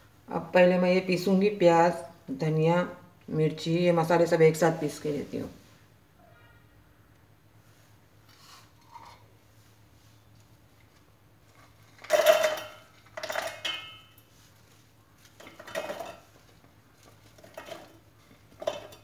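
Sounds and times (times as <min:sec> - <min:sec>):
ingredients clattering in metal jar: 0:11.7 - 0:14.2, 0:15.4 - 0:19.0.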